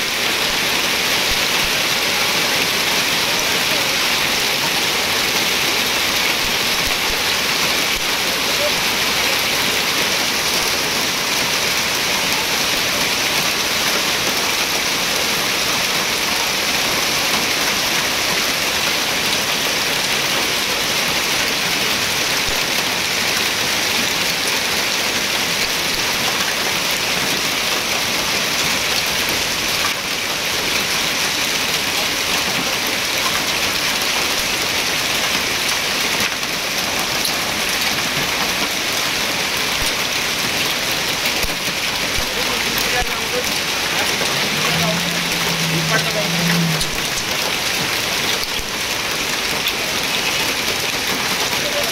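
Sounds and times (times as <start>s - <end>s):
heavy rain and hail pelting: 0.0s - 51.9s.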